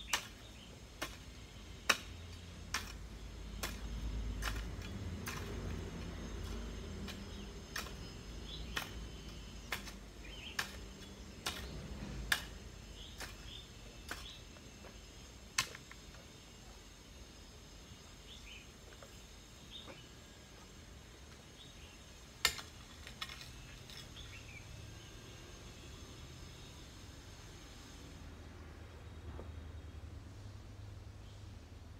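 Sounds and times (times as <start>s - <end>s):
garden hoe striking soil: 0.0s - 16.4s, 22.3s - 24.4s
bird chirps: 6.1s - 11.8s.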